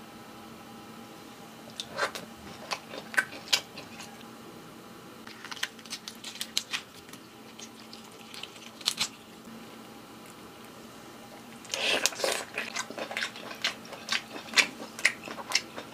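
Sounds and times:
lobster shell cracking: 5.3 - 9.2.

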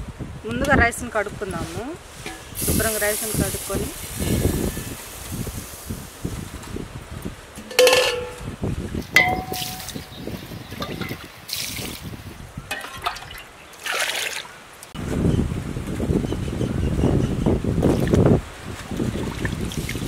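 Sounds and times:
steel bowl clinking on metal: 7.6 - 8.5, 9.2 - 10.2, 12.7 - 13.4.

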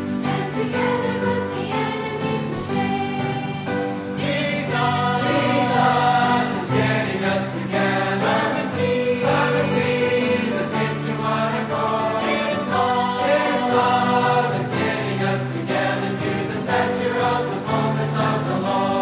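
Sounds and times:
choir singing a hymn: 0.0 - 19.0.

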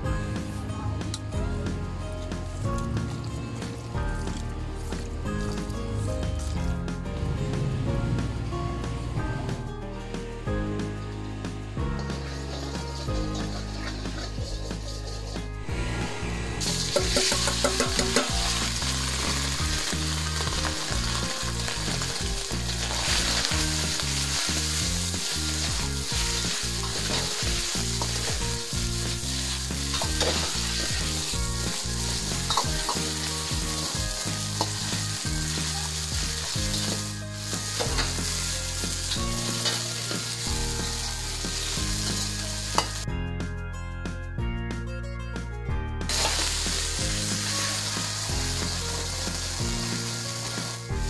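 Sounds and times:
meat sizzling in hot oil: 11.8 - 15.8, 16.6 - 43.1, 46.1 - 51.0
ladle scraping a wok: 12.0 - 40.5.

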